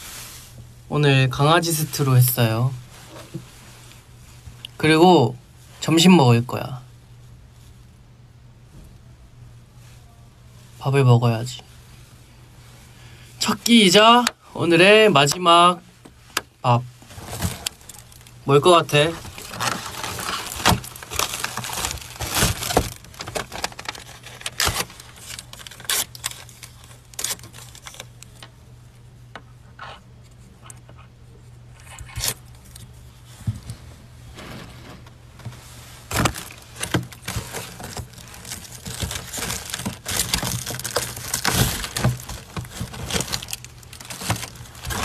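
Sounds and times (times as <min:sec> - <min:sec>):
foil bag crinkling and rustling: 0:16.7 - 0:28.5, 0:34.4 - 0:45.0.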